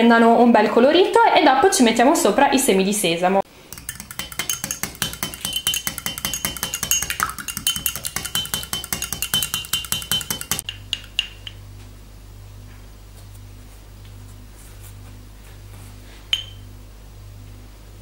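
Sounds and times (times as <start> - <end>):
fork beating egg in glass: 3.7 - 11.4
fork clinking against glass: 3.7 - 11.5, 16.3 - 16.6.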